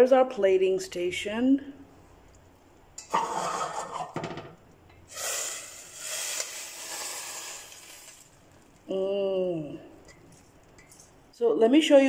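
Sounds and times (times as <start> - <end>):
metal pot knocking and scraping: 3.0 - 4.6
noodles and broth pouring: 5.1 - 8.9.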